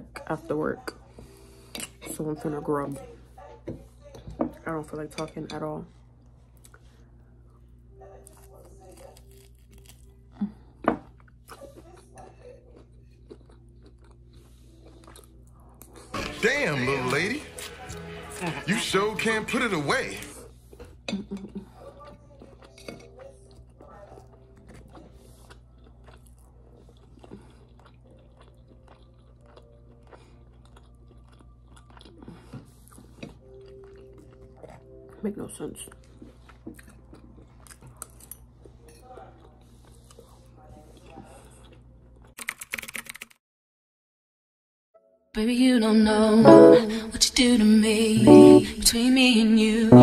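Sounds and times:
person chewing: 0:08.3 - 0:16.1, 0:22.0 - 0:35.0, 0:36.0 - 0:42.4.

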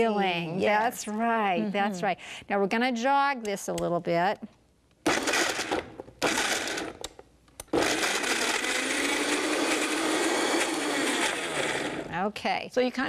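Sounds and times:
blender motor running: 0:05.1 - 0:07.0, 0:07.6 - 0:12.1.

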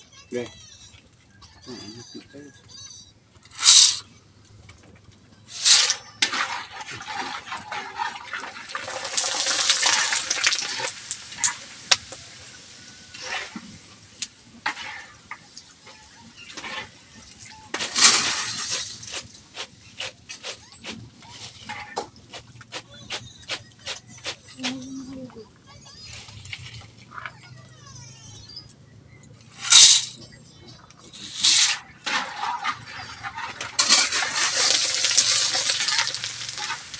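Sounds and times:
crackling pops: 0:03.4 - 0:07.0, 0:08.7 - 0:24.9, 0:29.3 - 0:36.9
pasta sizzling in hot oil: 0:05.5 - 0:20.1, 0:31.2 - 0:36.9.

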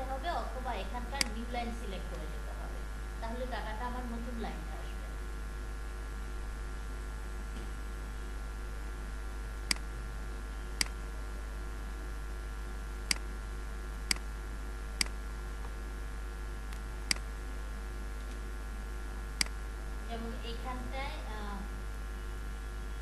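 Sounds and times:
low electrical hum: 0:00.0 - 0:23.0
computer mouse clicking: 0:01.2 - 0:01.4, 0:16.7 - 0:17.2.

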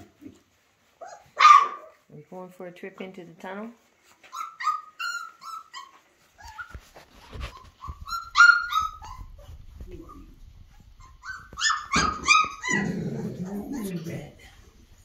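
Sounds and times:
puppies yelping: 0:00.9 - 0:02.0, 0:04.2 - 0:14.0.

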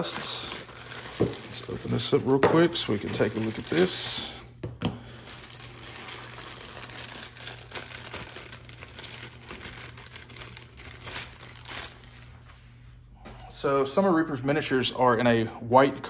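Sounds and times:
plastic bag crinkling: 0:00.0 - 0:04.4, 0:05.0 - 0:12.6.

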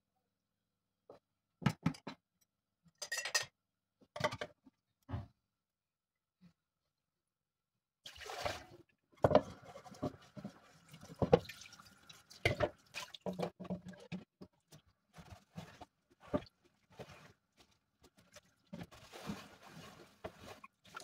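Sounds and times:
tap water running and splashing: 0:08.1 - 0:21.0
pans scrubbed: 0:15.1 - 0:21.0.

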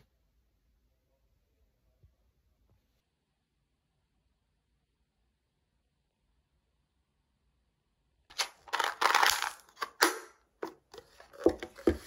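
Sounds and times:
plastic crinkling: 0:08.3 - 0:10.1.

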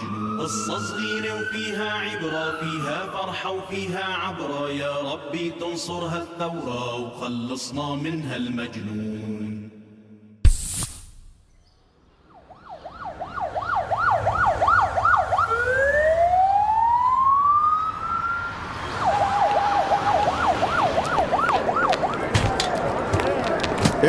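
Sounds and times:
electronic siren wailing: 0:00.0 - 0:03.2, 0:12.3 - 0:22.2.

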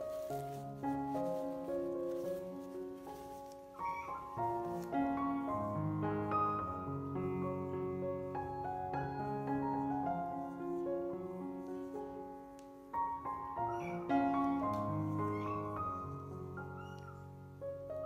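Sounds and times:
slow piano music: 0:00.0 - 0:18.0
cat meowing faintly: 0:03.8 - 0:04.6.

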